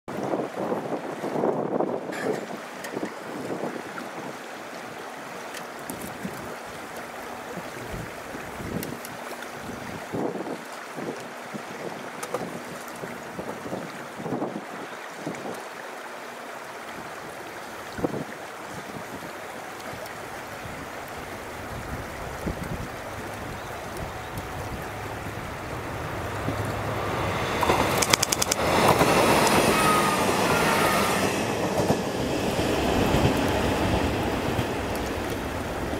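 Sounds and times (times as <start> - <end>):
wind noise on microphone: 0.1 - 4.4, 7.4 - 15.6, 17.0 - 35.9
diesel railcar engine drone: 20.9 - 35.9
sharp clicks: 27.6 - 28.6.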